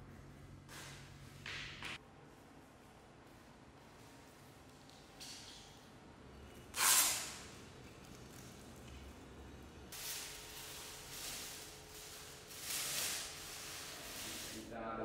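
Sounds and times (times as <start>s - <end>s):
plastic wrapping rasp: 6.6s - 8.9s, 9.9s - 14.6s
paper wrapping rustling: 9.9s - 14.6s.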